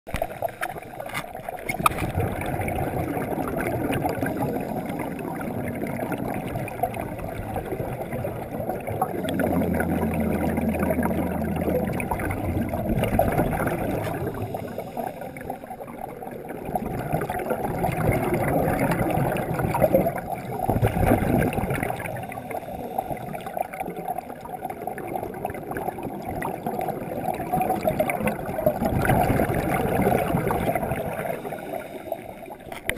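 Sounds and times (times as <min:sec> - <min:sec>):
exhaled air bubbling: 0:00.1 - 0:32.9
diver regulator breathing underwater: 0:07.4 - 0:15.8, 0:20.6 - 0:23.8, 0:29.2 - 0:32.9.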